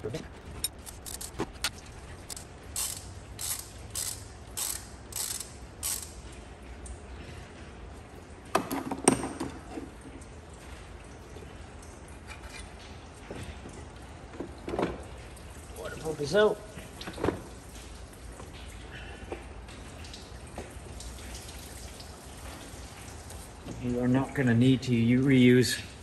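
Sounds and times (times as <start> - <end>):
ratchet wrench clicking: 0.6 - 6.2.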